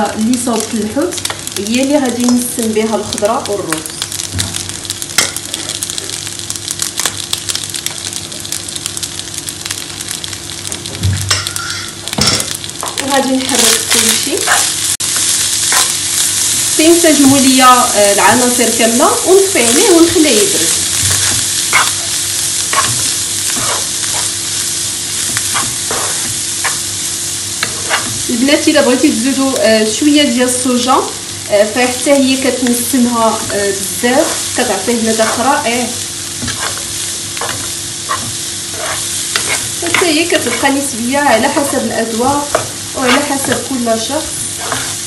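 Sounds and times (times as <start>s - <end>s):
food sizzling in a frying pan: 0.0s - 45.0s
wooden spatula scraping through food: 14.1s - 16.6s, 19.6s - 28.3s, 33.3s - 45.0s.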